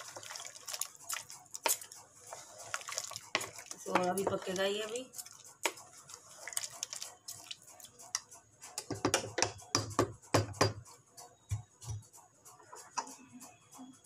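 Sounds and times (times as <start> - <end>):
wooden spatula scraping a pot: 0.0 - 7.7.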